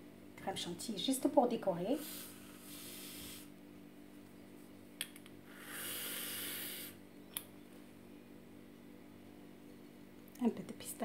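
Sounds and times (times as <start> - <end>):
aerosol can hissing: 5.6 - 7.0.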